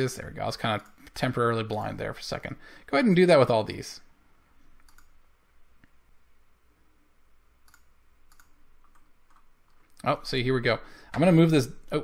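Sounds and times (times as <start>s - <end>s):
faint computer mouse clicks: 4.8s - 5.2s, 7.6s - 9.9s.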